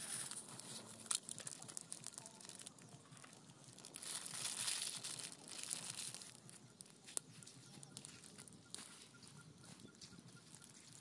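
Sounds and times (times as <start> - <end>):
plastic sachets crinkling and tearing: 0.0 - 8.6.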